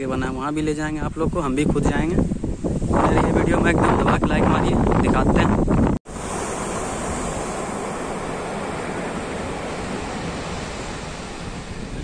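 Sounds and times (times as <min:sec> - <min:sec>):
surf washing onto a beach: 0:06.1 - 0:12.0.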